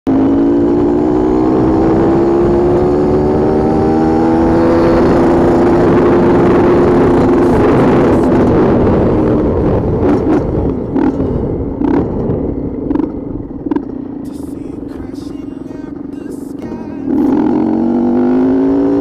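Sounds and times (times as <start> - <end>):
dirt bike engine running: 0.1 - 19.0.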